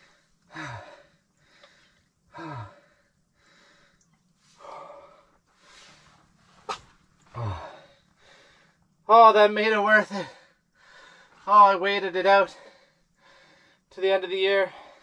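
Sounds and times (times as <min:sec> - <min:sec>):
man breathing: 0:00.0 - 0:08.9, 0:10.1 - 0:11.5, 0:12.5 - 0:13.9, 0:14.6 - 0:15.0
man sighing low: 0:02.3 - 0:02.9, 0:07.3 - 0:07.9.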